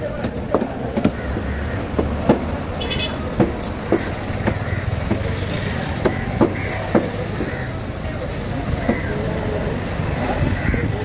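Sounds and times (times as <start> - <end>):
road traffic rumble: 0.0 - 11.0
knife chopping on wooden block: 6.0 - 7.2.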